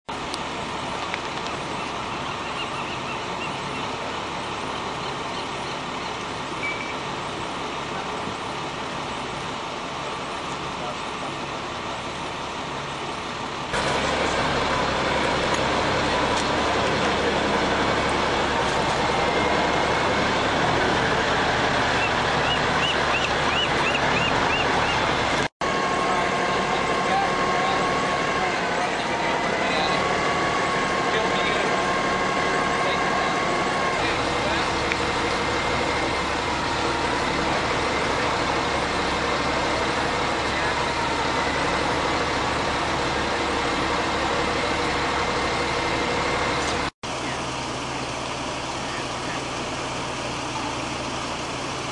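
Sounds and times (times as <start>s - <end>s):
heavy vehicle engines running: 0.0s - 51.9s.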